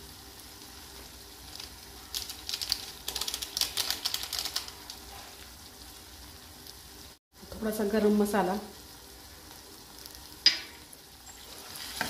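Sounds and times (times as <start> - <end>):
seasoning sachet crinkling open: 1.3 - 5.1.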